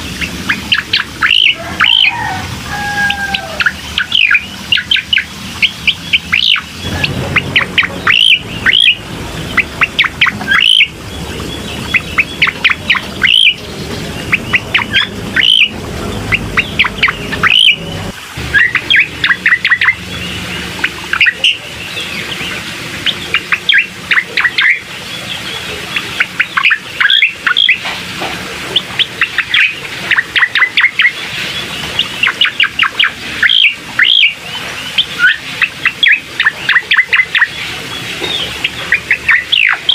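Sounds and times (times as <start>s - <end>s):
sharp high bird chirps: 4.0s - 13.6s, 14.3s - 17.8s, 18.5s - 20.3s.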